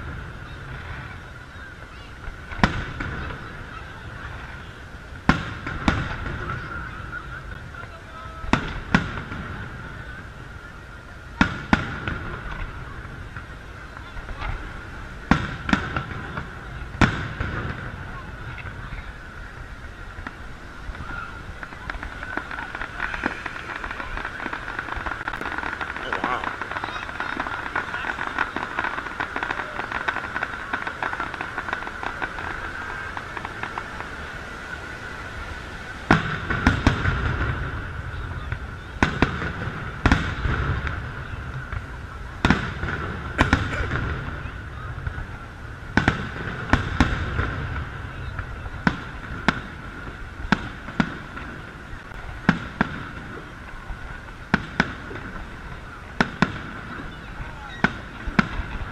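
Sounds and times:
continuous low rumble: 0:00.0 - 0:58.9
fireworks crackling: 0:00.0 - 0:58.9
firework shells bursting: 0:20.2 - 0:34.4.

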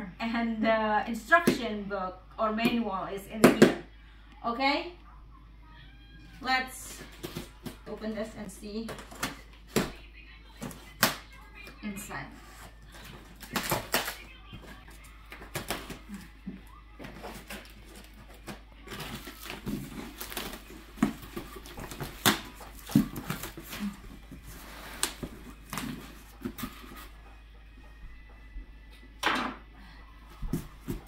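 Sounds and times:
cardboard rustling and scraping: 0:17.0 - 0:27.1.

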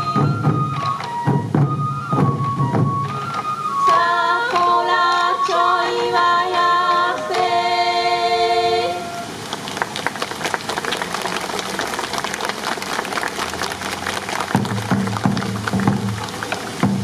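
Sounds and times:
voices singing held notes: 0:03.3 - 0:09.6.

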